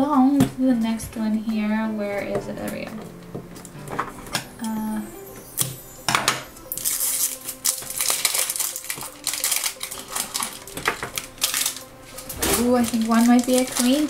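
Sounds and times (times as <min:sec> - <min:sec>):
plastic wrapping crinkling: 0:02.1 - 0:14.0
scissors snipping plastic: 0:06.6 - 0:14.0.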